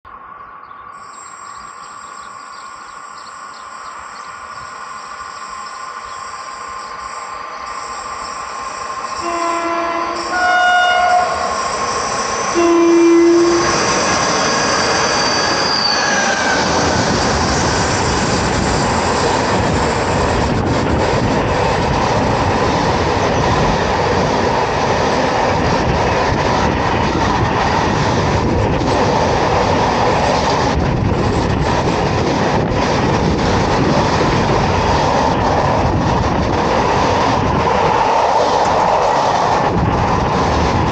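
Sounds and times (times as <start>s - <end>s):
train wheels rolling on rails: 0.9s - 40.9s
train horn: 9.2s - 11.6s, 12.5s - 13.8s.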